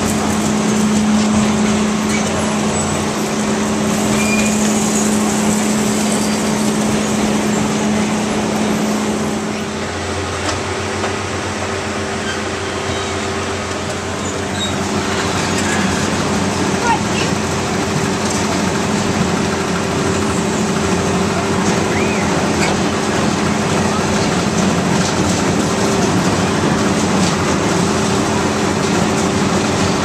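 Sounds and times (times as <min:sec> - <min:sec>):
dense wash of noise: 0:00.0 - 0:12.2
carnival ride mechanical hum: 0:00.0 - 0:30.0.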